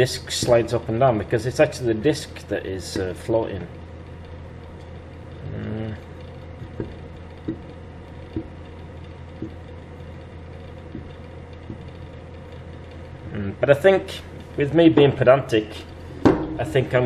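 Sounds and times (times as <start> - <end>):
fan heater humming: 0.0 - 17.0.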